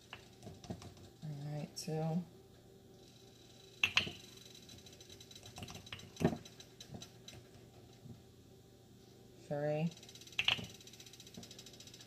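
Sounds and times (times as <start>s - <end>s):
plastic scoop clicking and tapping: 3.8s - 4.2s, 10.4s - 10.7s.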